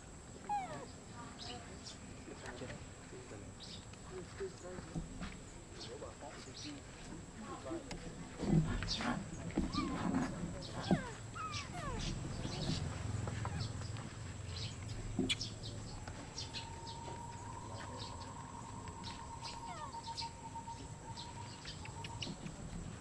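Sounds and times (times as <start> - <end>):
animals chirping and squeaking: 0.4 - 2.7, 8.4 - 23.0
long steady tone: 16.0 - 21.6.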